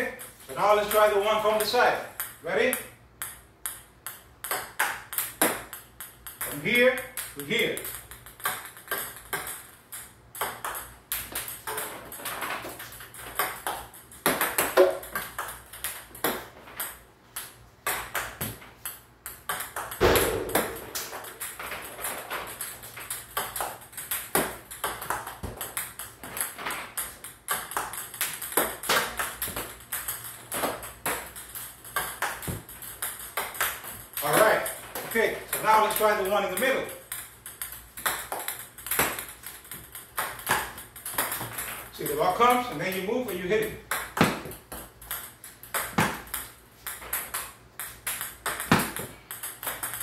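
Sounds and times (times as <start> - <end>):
table tennis balls clicking off racket: 0.9 - 50.0
ball bouncing on table: 3.2 - 6.6, 13.2 - 17.0, 19.3 - 22.7, 43.9 - 50.0
dull thump: 20.0 - 21.0.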